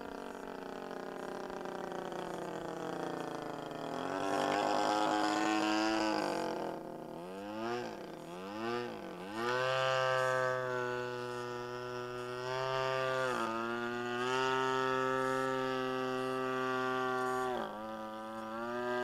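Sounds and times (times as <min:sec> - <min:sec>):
model airplane motor droning: 0:00.0 - 0:19.0.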